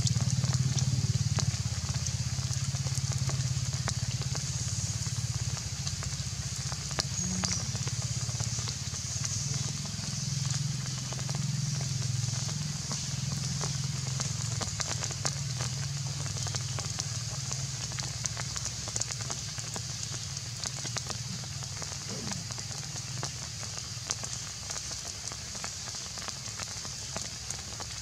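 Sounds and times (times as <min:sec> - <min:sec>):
high-pitched hiss: 0:15.4 - 0:25.8.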